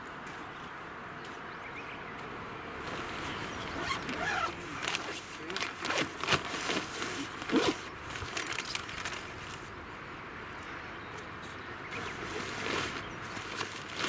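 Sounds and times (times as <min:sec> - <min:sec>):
nylon bag rustling and crinkling: 0:02.8 - 0:09.7, 0:11.9 - 0:14.0.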